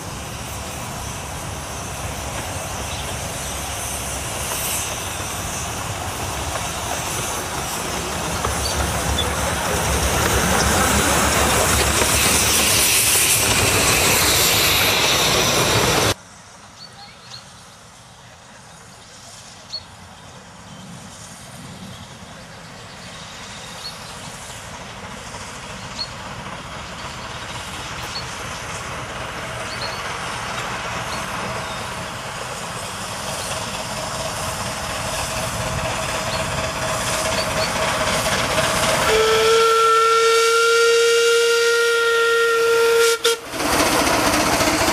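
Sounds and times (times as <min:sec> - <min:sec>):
steam locomotive approaching: 0:00.0 - 0:44.9
steam train passing: 0:00.0 - 0:44.9
steam whistle: 0:39.0 - 0:43.6.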